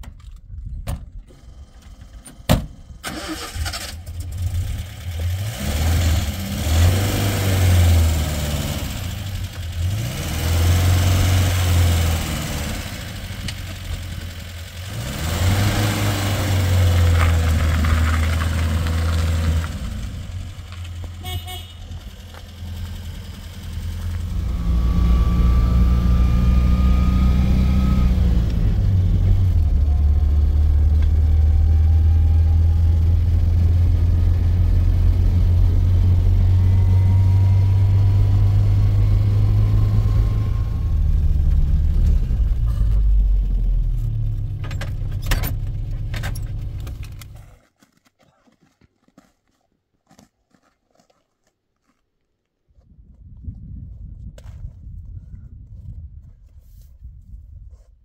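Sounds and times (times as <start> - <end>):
car engine revving: 3.1 - 47.4
faint rising whine: 22.0 - 32.7.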